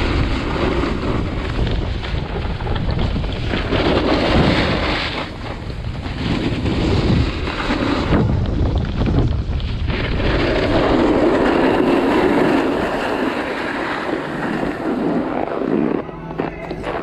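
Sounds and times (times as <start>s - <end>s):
skis scraping across snow: 0.0s - 16.0s
wind rushing over microphone: 0.0s - 17.0s.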